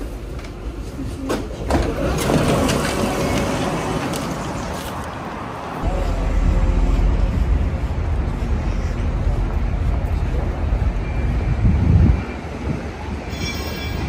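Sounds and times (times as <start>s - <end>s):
faint city background noise: 0.0s - 14.0s
wind buffeting microphone: 2.3s - 13.3s.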